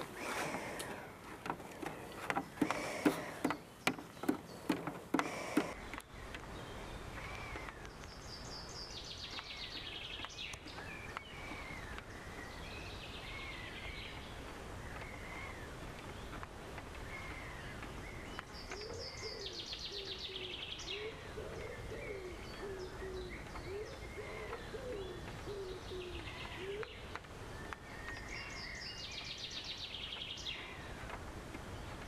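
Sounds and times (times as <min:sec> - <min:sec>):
outdoor background noise: 0:00.0 - 0:32.0
songbirds chirping and trilling: 0:00.0 - 0:32.0
sharp knocks: 0:01.4 - 0:05.8.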